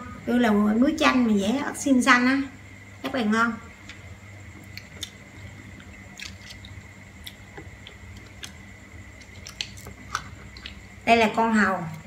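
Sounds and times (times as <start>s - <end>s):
steady low hum: 0.0s - 12.0s
mussel shells clicking: 9.2s - 10.9s.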